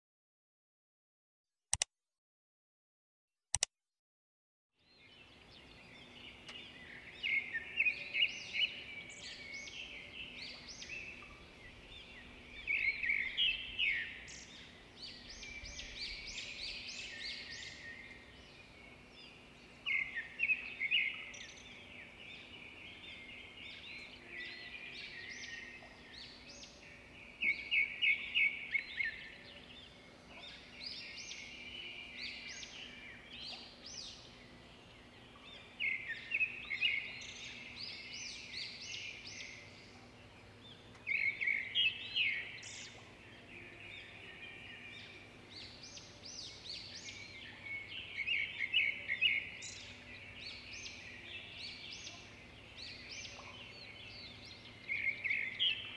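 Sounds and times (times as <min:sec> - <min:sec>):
short click: 0:03.5 - 0:03.7
songbirds chirping and trilling: 0:04.8 - 0:55.9
faint steady hum: 0:05.0 - 0:55.9.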